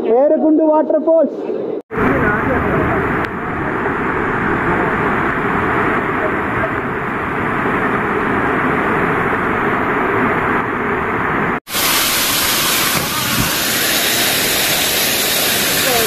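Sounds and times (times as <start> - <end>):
waterfall rushing: 11.7 - 16.0.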